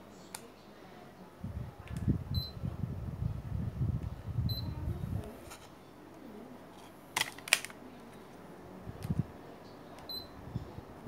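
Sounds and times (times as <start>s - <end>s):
air conditioner short high beeps: 2.3s - 2.6s, 4.4s - 4.9s, 10.1s - 10.6s.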